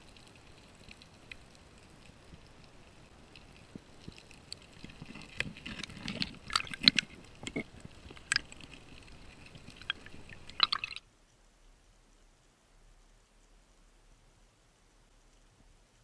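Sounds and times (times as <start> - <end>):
underwater clicks and scrapes: 0.0 - 11.0.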